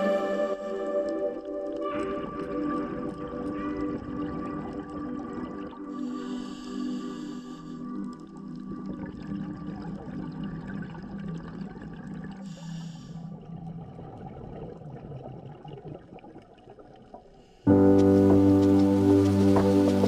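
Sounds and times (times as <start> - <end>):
muffled underwater noise: 0.0 - 15.1
scuba regulator bubbling and hiss: 0.0 - 20.0.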